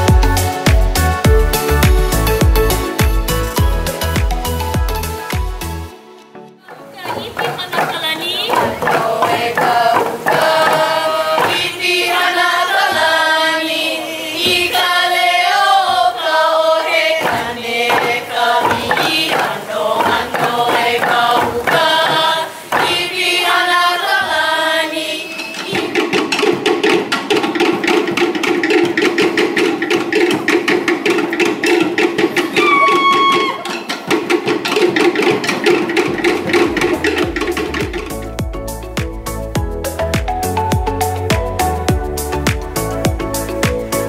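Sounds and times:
bamboo tubes stamped on floor: 6.7s - 11.8s, 17.2s - 23.2s, 25.6s - 38.2s
fast drumming ensemble: 6.7s - 13.4s, 16.8s - 24.1s, 25.4s - 44.0s
voices chanting in unison: 7.0s - 26.7s.

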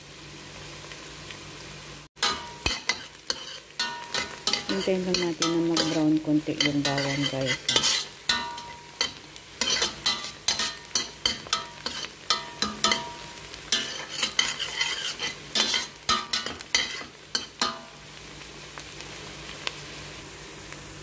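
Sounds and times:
faint frying sizzle: 0.0s - 21.0s
metal spatula scraping a pot: 2.2s - 17.8s.

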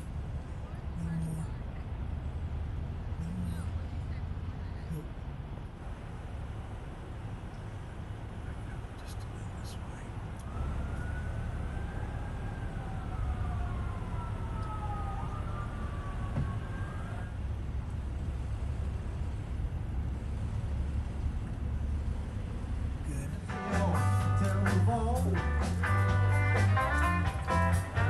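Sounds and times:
car driving rumble: 0.0s - 28.0s
faint emergency siren wailing: 10.4s - 17.7s.

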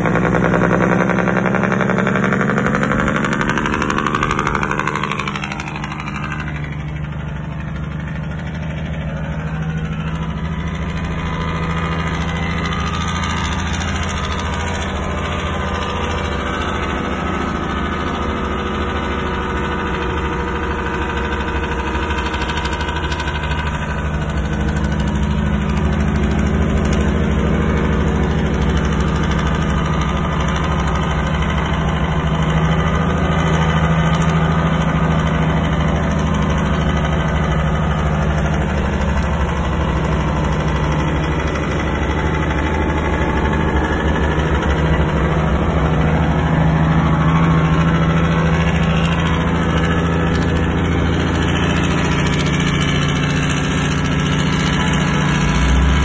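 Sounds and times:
truck diesel engine drone: 0.0s - 56.0s.

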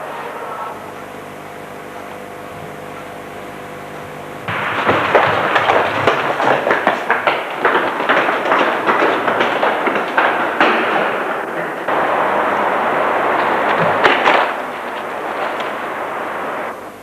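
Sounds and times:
steady hum with held tones: 0.0s - 17.0s
rapid cracks and bangs: 4.4s - 17.0s.

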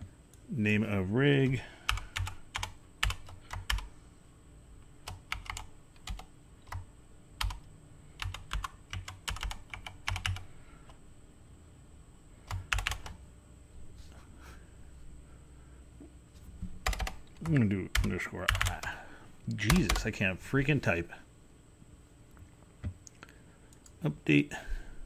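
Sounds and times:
keyboard typing: 1.9s - 3.9s, 5.0s - 10.4s, 12.5s - 13.2s, 16.8s - 19.0s, 19.7s - 20.1s.

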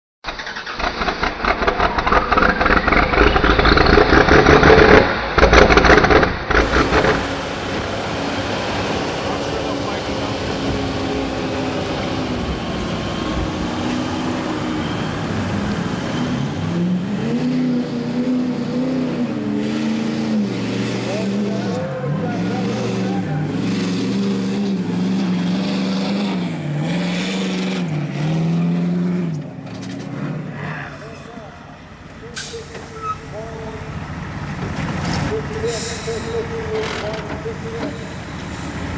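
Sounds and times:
loud engine revving: 0.4s - 31.1s.

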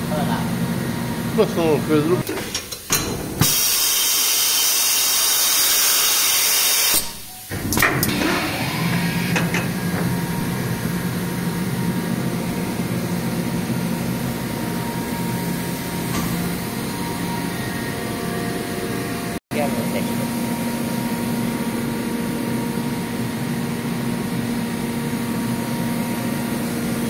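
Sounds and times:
low machine hum: 7.3s - 27.0s.

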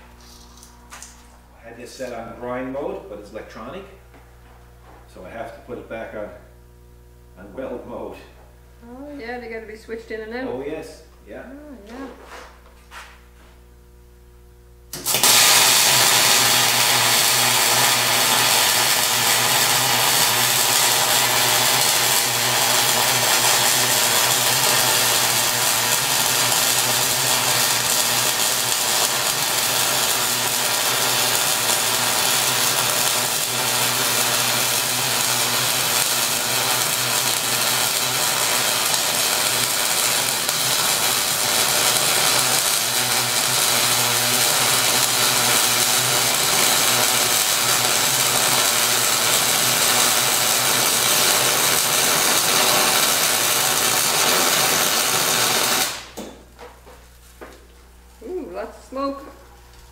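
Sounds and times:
welder arc crackling hiss: 14.9s - 56.2s.

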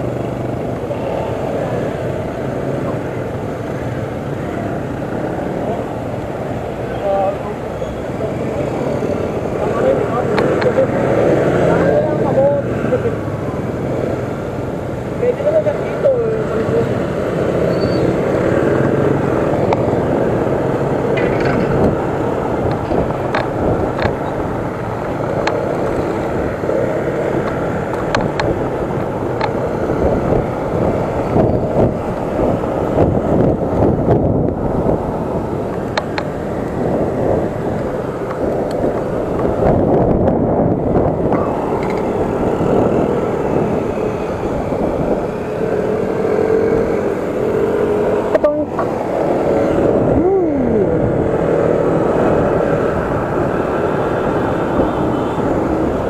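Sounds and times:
passing cars and motorcycles: 0.0s - 56.0s
road noise: 0.0s - 56.0s
wind buffeting microphone: 0.0s - 56.0s.

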